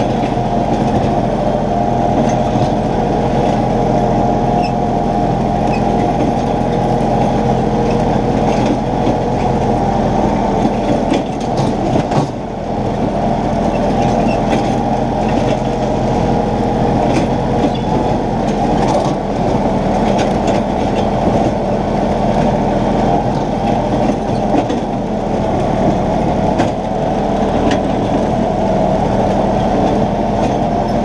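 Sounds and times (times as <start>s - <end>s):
tractor engine hum: 0.0s - 31.0s
rattling clatter: 5.6s - 9.8s.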